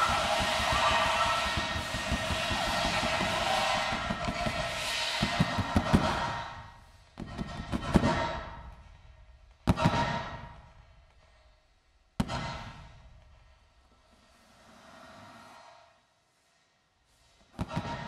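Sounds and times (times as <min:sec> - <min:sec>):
sudden reverberant hits: 0:00.0 - 0:06.7
dense reverberant noise wash: 0:00.0 - 0:07.0.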